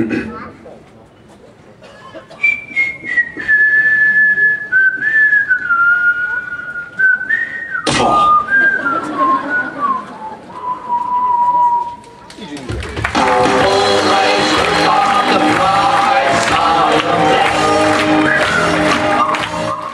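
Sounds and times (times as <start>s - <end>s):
person whistling a slow tune: 2.4s - 12.0s, 17.9s - 19.9s.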